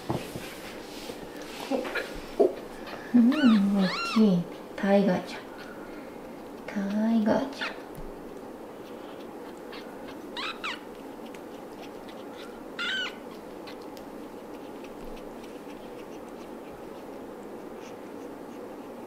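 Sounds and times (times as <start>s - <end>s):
kitten mewing: 1.8s - 4.6s, 8.8s - 18.6s.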